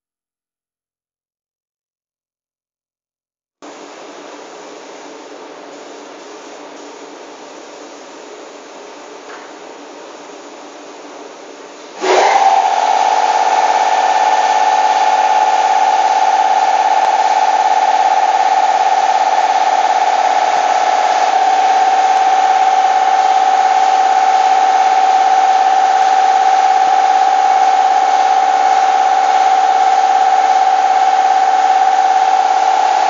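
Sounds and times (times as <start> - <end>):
high-pitched machine whine: 12.0 - 33.0.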